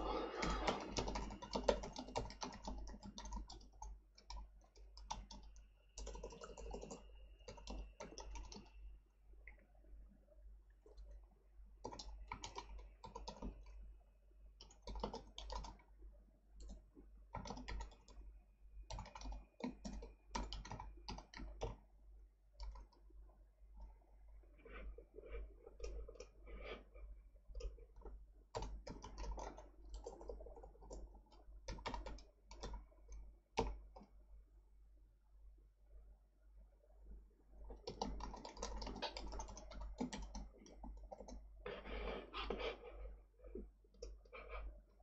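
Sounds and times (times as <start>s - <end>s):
typing on computer keyboard: 0.0s - 8.8s, 11.8s - 13.8s, 14.6s - 15.9s, 16.6s - 18.2s, 18.9s - 21.8s, 22.6s - 23.0s, 27.5s - 34.1s, 37.7s - 41.8s.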